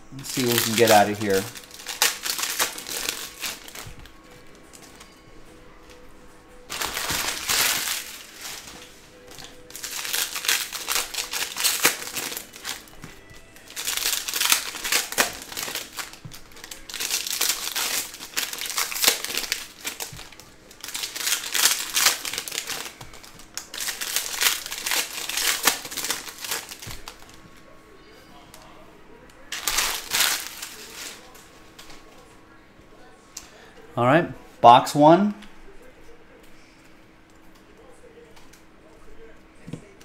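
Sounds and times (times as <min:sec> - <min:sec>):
foil wrappers crinkling: 0:00.1 - 0:05.2, 0:06.7 - 0:27.4, 0:29.5 - 0:32.0.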